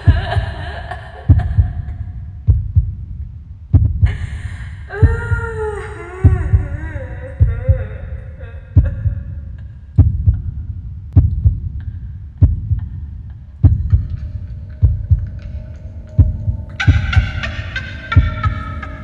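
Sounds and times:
heartbeat double thump: 0:00.1 - 0:00.6, 0:01.3 - 0:04.2, 0:05.0 - 0:05.5, 0:06.2 - 0:06.8, 0:07.4 - 0:07.9, 0:08.8 - 0:09.3, 0:10.0 - 0:15.5, 0:16.2 - 0:17.4, 0:18.1 - 0:18.6.

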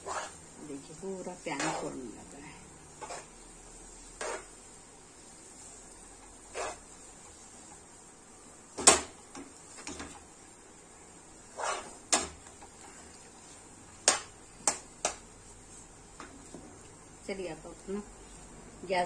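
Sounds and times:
steel spoon scraping pan: 0:00.0 - 0:00.4, 0:01.5 - 0:02.1, 0:03.0 - 0:03.4, 0:04.1 - 0:04.5, 0:06.5 - 0:06.9, 0:11.5 - 0:12.0.

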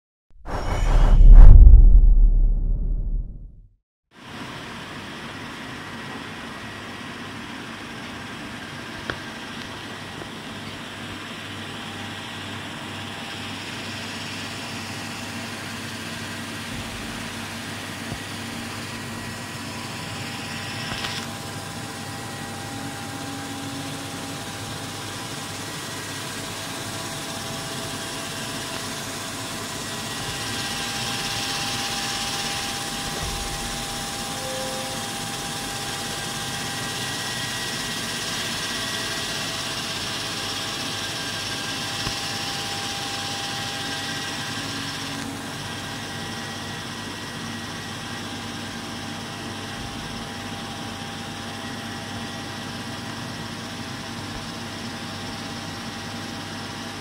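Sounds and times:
whining tones: 0:00.4 - 0:03.6.

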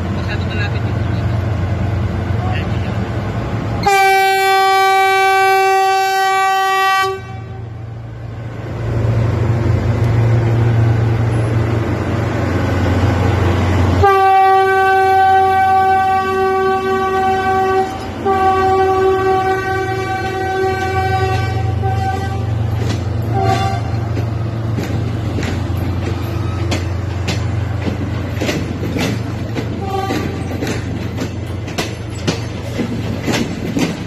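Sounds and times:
passing train rumble: 0:00.0 - 0:34.0
locomotive horn blasts: 0:03.8 - 0:07.7, 0:14.0 - 0:22.6, 0:23.3 - 0:24.0, 0:29.8 - 0:30.5.

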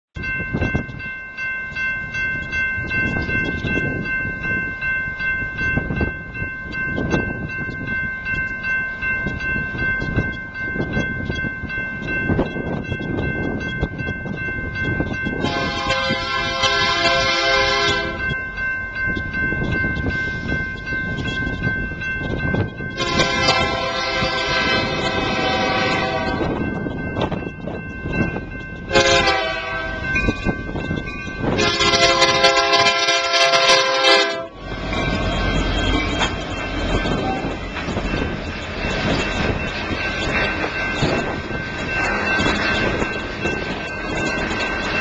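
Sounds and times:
crossing bell ringing: 0:00.2 - 0:45.0
low train rumble: 0:00.2 - 0:45.0
locomotive air horn blast: 0:15.4 - 0:18.2, 0:23.0 - 0:26.5, 0:28.9 - 0:30.1, 0:31.6 - 0:34.6.

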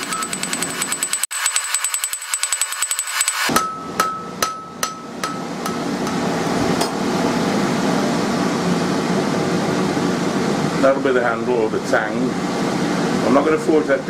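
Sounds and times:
hammer striking steel on anvil: 0:00.0 - 0:07.1
steady rushing hum: 0:03.6 - 0:14.0.

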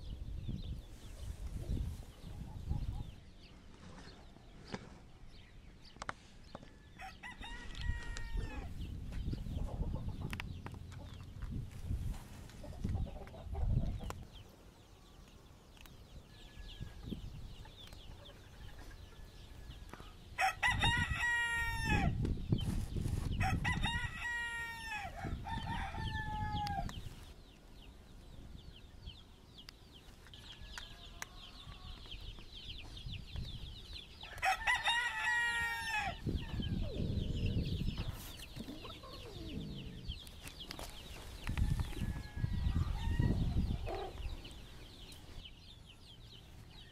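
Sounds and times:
rooster crowing: 0:07.0 - 0:08.7, 0:20.4 - 0:22.2, 0:23.4 - 0:26.9, 0:34.3 - 0:36.2, 0:41.6 - 0:43.7.

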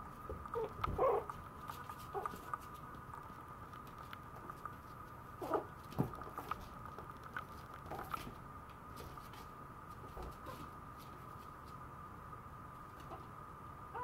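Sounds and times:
puppy whimpering: 0:00.5 - 0:01.3.

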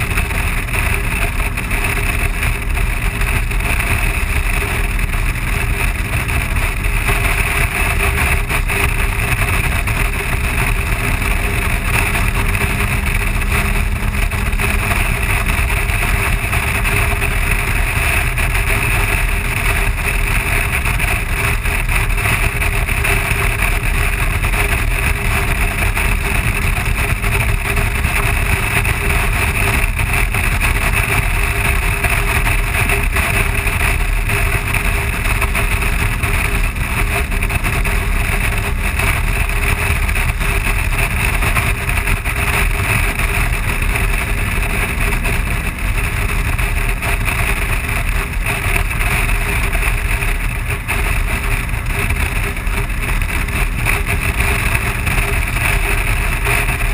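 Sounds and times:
motorcycle engine low drone: 0:00.0 - 0:56.9
motorcycle wind and road noise: 0:00.0 - 0:56.9.

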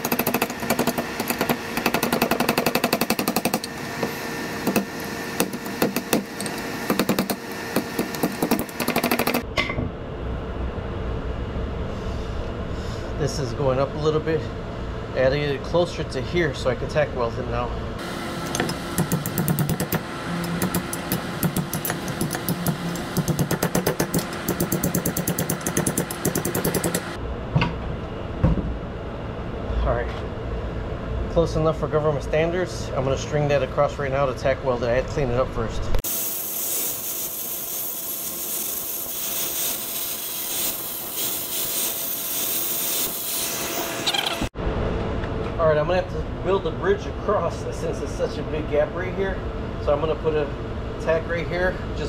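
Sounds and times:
angle grinder on steel: 0:36.1 - 0:44.5.

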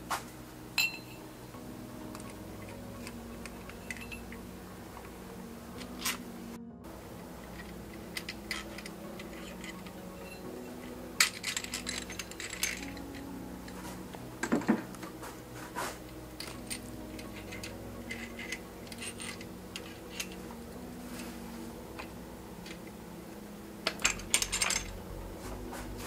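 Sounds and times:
metal parts clinking on metal: 0:02.1 - 0:04.4, 0:05.8 - 0:06.3, 0:07.4 - 0:15.1, 0:16.4 - 0:20.5, 0:23.8 - 0:25.0.

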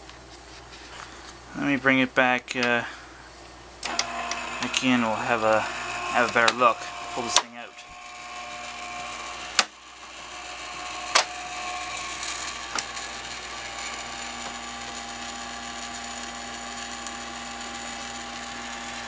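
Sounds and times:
motor whine: 0:03.8 - 0:19.0.

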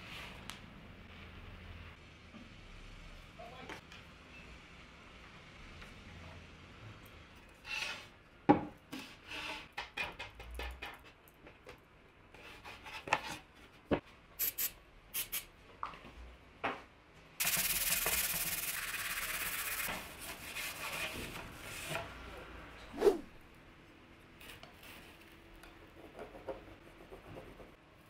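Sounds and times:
sanding block rubbing on panel: 0:17.4 - 0:21.8.

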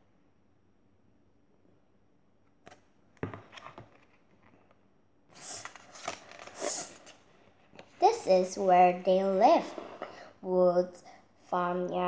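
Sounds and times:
taps on a book: 0:03.2 - 0:03.5
paper rustling: 0:05.3 - 0:07.9.

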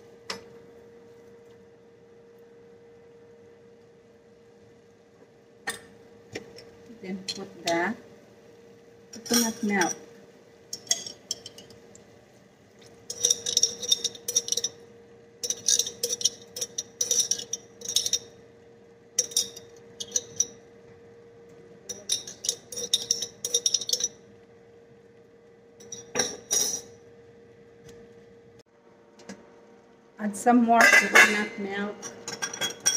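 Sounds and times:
faint steady hum: 0:00.0 - 0:32.9
metal spoon scraping a pot: 0:13.1 - 0:14.8, 0:15.4 - 0:18.3, 0:19.2 - 0:20.5, 0:21.9 - 0:24.2.

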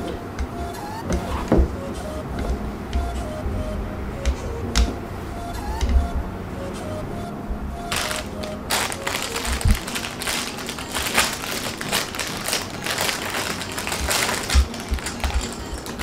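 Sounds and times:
light background music: 0:00.0 - 0:16.0
plastic bag crinkling: 0:07.9 - 0:16.0.

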